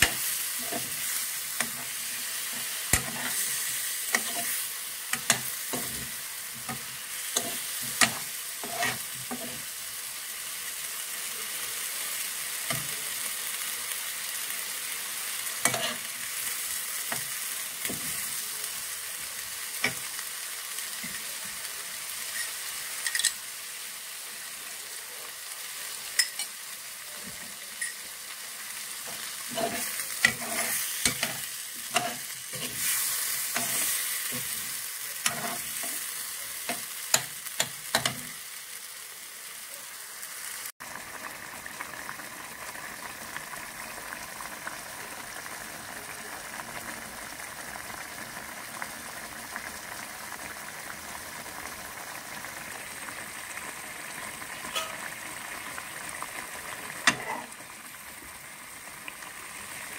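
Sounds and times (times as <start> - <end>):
metal spoon scraping a pan: 0.0 - 9.7, 15.6 - 16.2, 29.1 - 38.3, 54.6 - 55.1, 57.0 - 57.5
curry sizzling and bubbling: 0.0 - 59.9.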